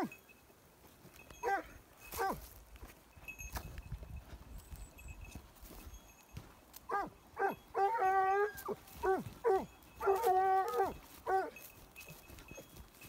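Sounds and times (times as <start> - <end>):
dog yelping: 1.4 - 2.4, 6.9 - 11.6
dog howling: 6.9 - 11.5.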